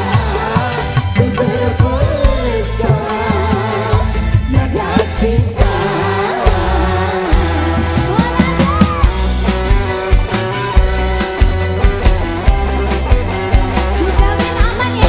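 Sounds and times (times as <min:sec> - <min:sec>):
drum kit: 0:00.0 - 0:15.0
electric bass: 0:00.0 - 0:15.0
hand drums: 0:06.5 - 0:15.0
woman singing: 0:07.8 - 0:09.0, 0:14.0 - 0:15.0.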